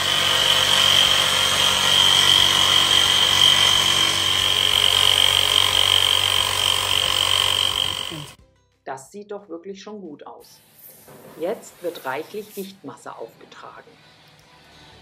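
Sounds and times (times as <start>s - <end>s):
jigsaw cutting with high whine: 0.0s - 8.4s.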